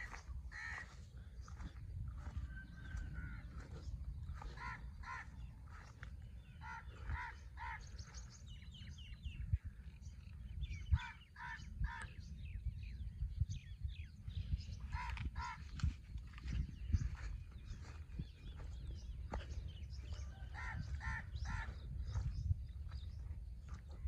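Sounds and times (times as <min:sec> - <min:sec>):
crows cawing: 0:00.0 - 0:08.4, 0:10.9 - 0:12.1, 0:14.9 - 0:15.8, 0:20.2 - 0:22.2
small birds chirping: 0:00.0 - 0:24.0.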